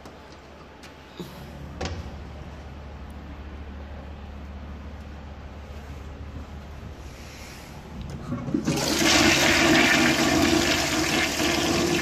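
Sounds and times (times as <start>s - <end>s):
toilet flushing: 8.2s - 12.0s.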